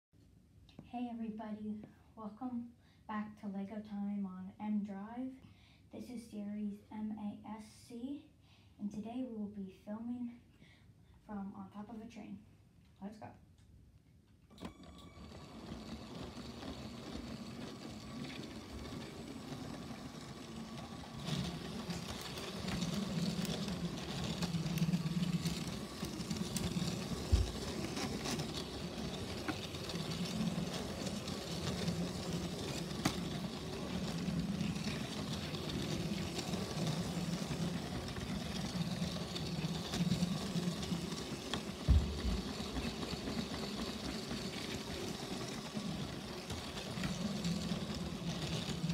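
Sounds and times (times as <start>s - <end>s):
toy train running on plastic track: 14.5s - 48.9s.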